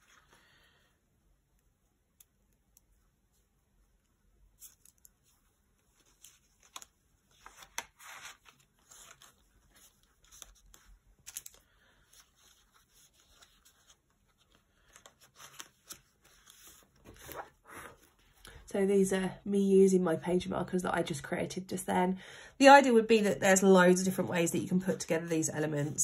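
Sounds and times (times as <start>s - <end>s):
notebook pages rustling: 4.5s - 18.4s.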